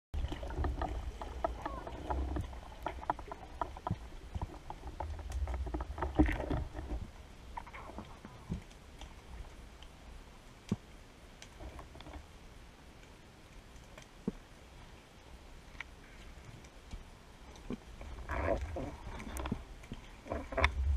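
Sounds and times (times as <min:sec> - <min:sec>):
low rumble of moving water: 0:00.1 - 0:20.9
underwater clicks and knocks: 0:00.2 - 0:09.2, 0:10.7 - 0:12.2, 0:16.9 - 0:20.9.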